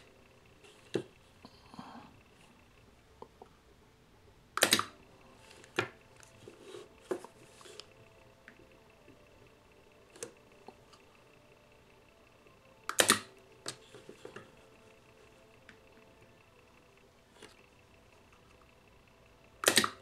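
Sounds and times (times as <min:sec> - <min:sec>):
spot welder snapping: 0:04.6 - 0:05.0, 0:12.9 - 0:13.8, 0:19.6 - 0:20.0.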